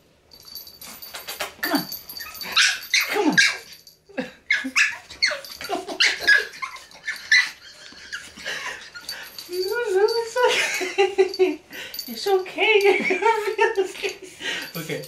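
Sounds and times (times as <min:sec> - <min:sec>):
puppy whining and yipping: 0:01.2 - 0:03.8, 0:04.5 - 0:09.2.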